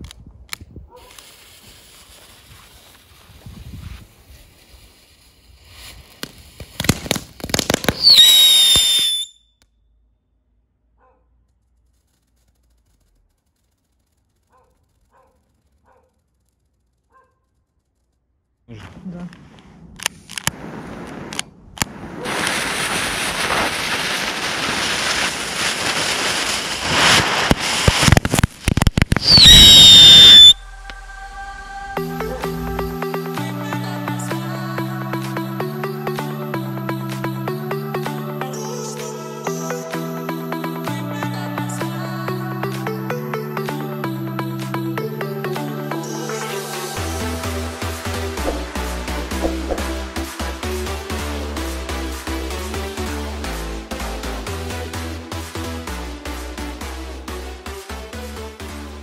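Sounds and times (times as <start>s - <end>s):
firework high whistle: 1.0s - 9.6s, 20.6s - 31.7s.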